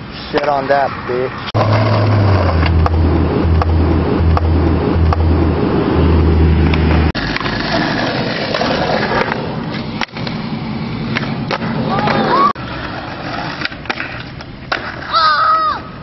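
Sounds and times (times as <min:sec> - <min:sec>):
skateboard wheels rolling on concrete: 0:00.0 - 0:16.0.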